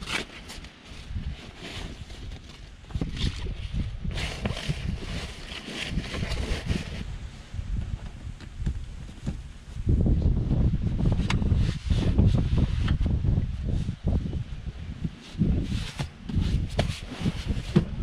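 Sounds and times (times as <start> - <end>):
wind buffeting microphone: 0.9 - 18.0.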